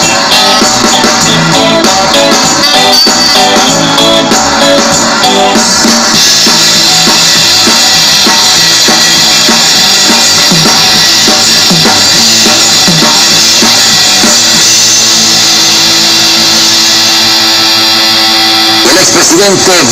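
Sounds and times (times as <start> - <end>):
cymbals: 0.0 - 19.8
live band playing: 0.0 - 19.9
kick and snare drum beat: 3.3 - 14.9.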